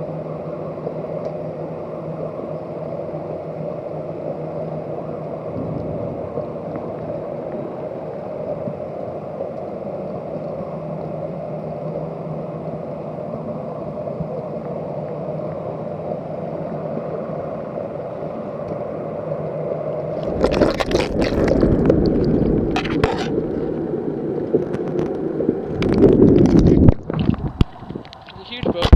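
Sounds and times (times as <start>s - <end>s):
water rushing and splashing: 20.0s - 28.9s
muffled underwater noise: 20.1s - 28.9s.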